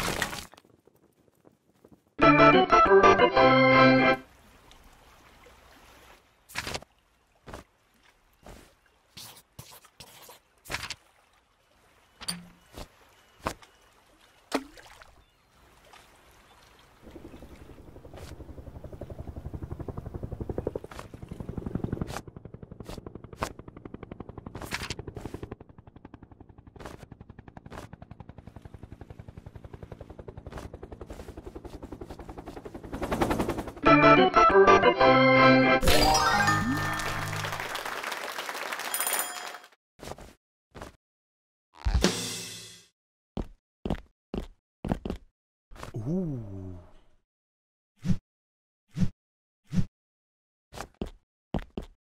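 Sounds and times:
cartoon helicopter rotor chopping: 17.8s - 34.7s.

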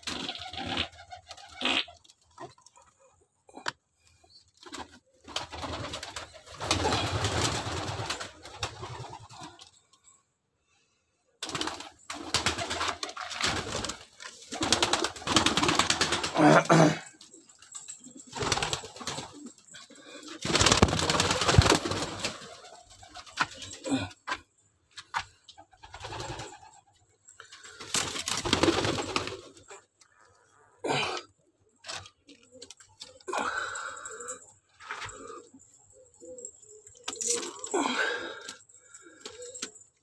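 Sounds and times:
pigeons cooing: 0.0s - 3.0s, 12.3s - 24.4s.

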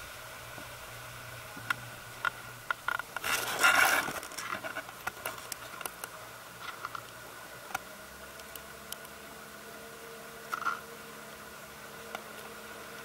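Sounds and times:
outboard engine idling hum: 0.0s - 13.0s
small ticks and patters: 1.6s - 9.2s, 10.4s - 10.9s.

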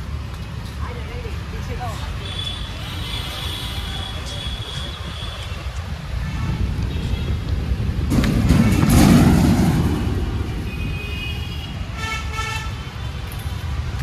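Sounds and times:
road traffic: 0.0s - 14.0s
wind rumble on microphone: 4.5s - 11.1s
vehicle horn: 10.7s - 12.9s.

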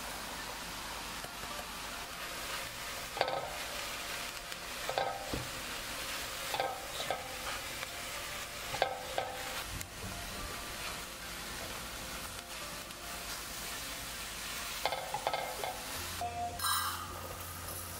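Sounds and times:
vegetables sizzling in a pan: 0.0s - 17.9s
spatula knocking and scraping pan: 3.2s - 3.6s, 4.9s - 5.6s, 6.5s - 7.6s, 8.7s - 9.4s, 14.8s - 15.8s.

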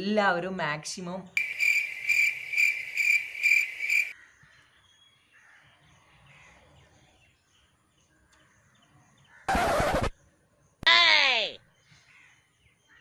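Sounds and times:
cricket chirring: 1.4s - 4.1s.

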